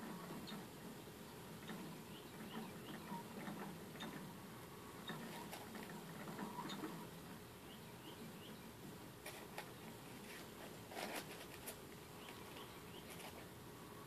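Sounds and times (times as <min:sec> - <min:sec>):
low steady hum: 0:00.0 - 0:14.0
rodents pattering in plastic cage: 0:05.0 - 0:07.0, 0:09.2 - 0:13.5.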